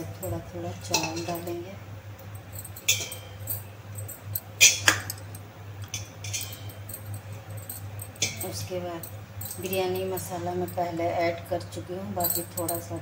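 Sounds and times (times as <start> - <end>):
steady low hum: 0.0 - 13.0
metallic clinks on steel pot: 0.9 - 1.6, 2.4 - 11.0, 12.2 - 13.0.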